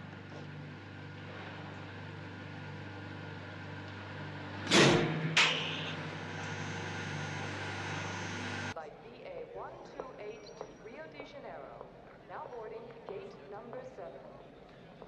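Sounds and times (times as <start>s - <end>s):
loud bursts of machinery noise: 0.0s - 8.8s
low electrical machine hum: 0.0s - 13.6s.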